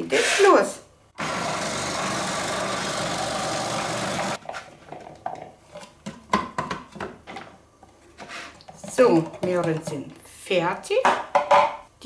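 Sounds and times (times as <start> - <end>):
food processor whirring: 1.2 - 4.4.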